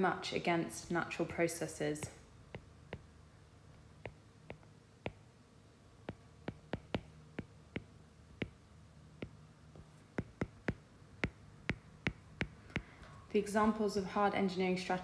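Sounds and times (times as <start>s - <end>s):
faint steady hum: 0.0s - 15.0s
stylus tapping on glass screen: 2.0s - 3.1s, 4.0s - 5.2s, 6.0s - 8.6s, 9.2s - 13.1s.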